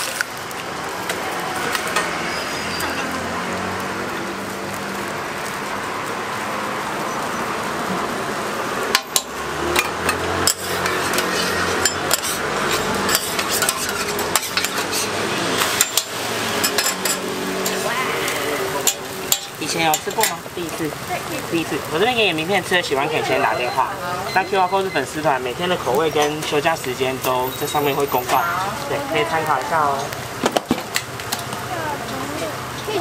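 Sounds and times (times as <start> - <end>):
food sizzling on a griddle: 0.0 - 33.0
metal spatula scraping griddle: 9.1 - 20.8.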